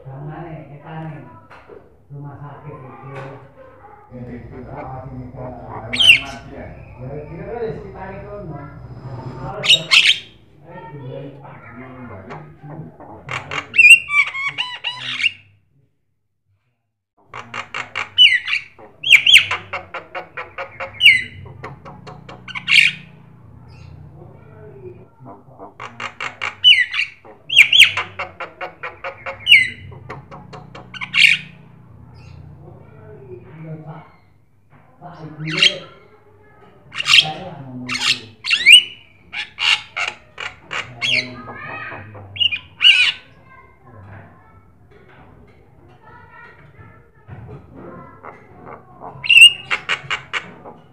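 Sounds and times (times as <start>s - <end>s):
bird singing harsh notes: 5.3s - 10.6s, 20.6s - 24.1s, 28.8s - 32.6s
bird clicks and chatter: 17.3s - 24.0s, 25.2s - 32.5s, 37.9s - 43.7s, 44.9s - 50.9s.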